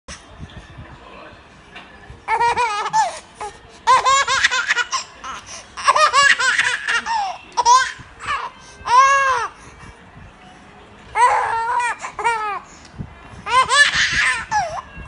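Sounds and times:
baby laughing: 2.3s - 9.5s, 13.4s - 14.8s.

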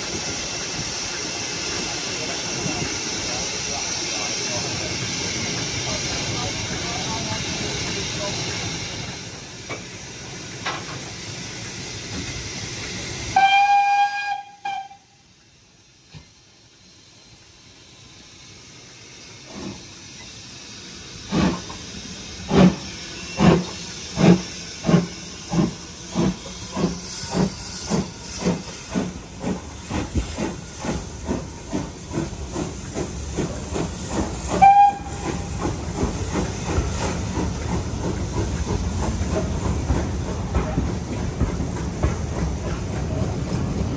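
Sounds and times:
steam hissing: 0.0s - 43.9s
steam whistle: 13.2s - 15.2s, 34.5s - 35.5s
locomotive exhaust beats: 22.5s - 43.9s.

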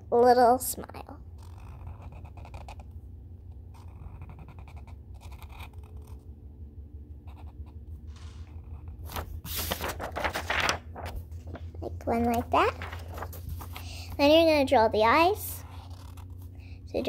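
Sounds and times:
marker scratching on paper: 1.4s - 2.8s, 3.7s - 6.2s, 15.6s - 16.4s
paper rustling: 8.1s - 14.4s.

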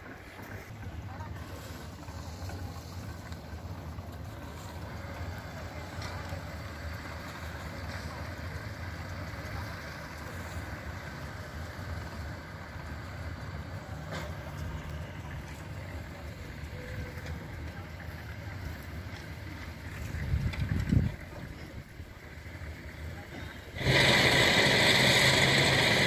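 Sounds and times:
wind buffeting microphone: 20.0s - 22.0s.

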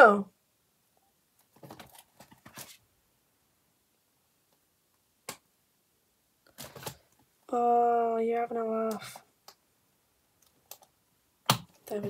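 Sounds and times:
plastic envelope rustling: 1.5s - 2.8s.

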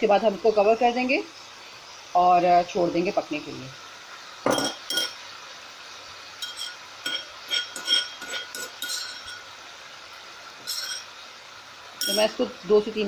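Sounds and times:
spoon clinking against pot: 4.5s - 5.2s, 6.4s - 9.5s, 10.6s - 11.1s, 12.0s - 12.4s.

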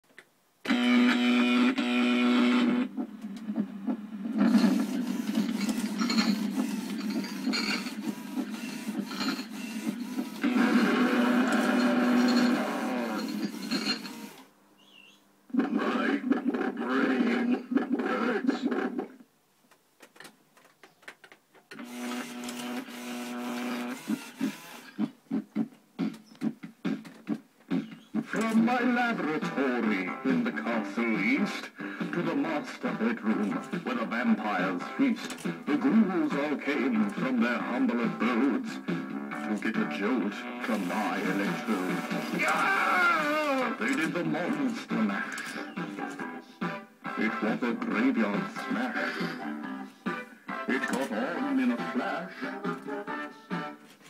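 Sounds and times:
loud buzzing tone from speaker: 0.6s - 3.0s, 4.5s - 14.5s, 21.8s - 25.1s, 40.5s - 43.6s
gear motors whirring and clicking: 4.4s - 14.5s, 21.7s - 25.2s, 40.6s - 44.2s.

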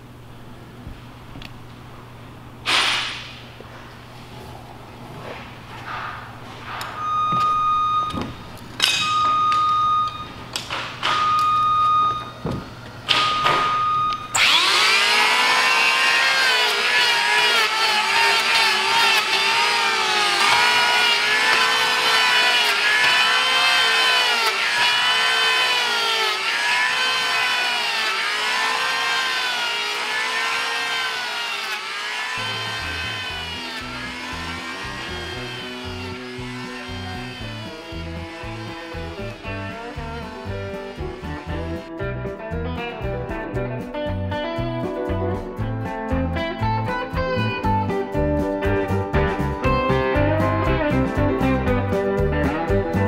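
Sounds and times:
electric hand planer shaving wood: 14.3s - 41.9s.

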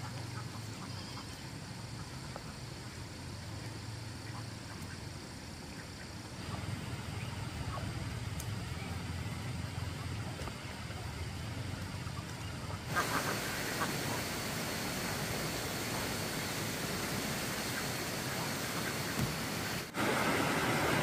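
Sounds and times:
low steady rumble: 1.6s - 19.9s
ducks quacking: 12.0s - 19.9s
loud hiss: 12.9s - 21.0s.

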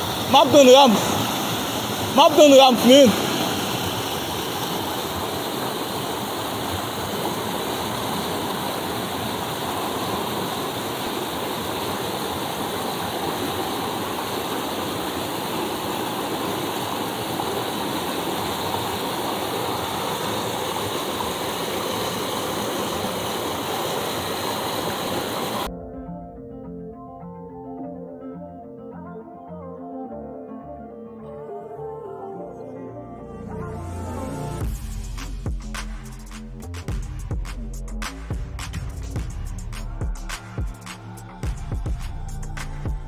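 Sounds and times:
river water rushing over boulders: 0.0s - 25.7s.

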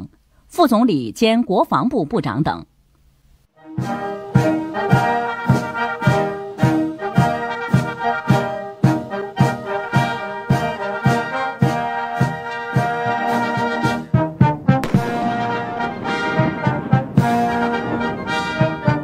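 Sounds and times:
brass chords: 3.6s - 19.0s
steady drumbeat: 14.8s - 19.0s.

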